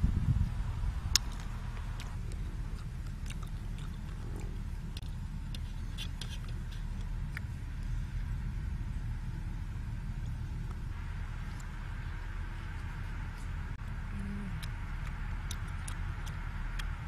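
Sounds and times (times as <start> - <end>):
low rumble: 0.0 - 17.0
faint clicks and ticks: 1.1 - 8.0, 10.2 - 17.0.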